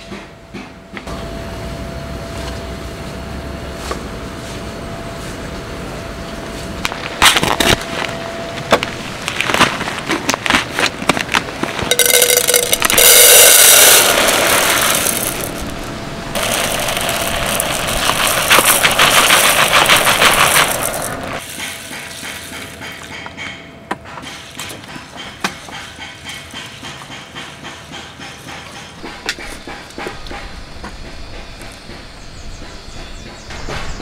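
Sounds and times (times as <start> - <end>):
rice pattering into metal pot: 11.8 - 22.8
fingers stirring rice clicks: 11.9 - 22.8.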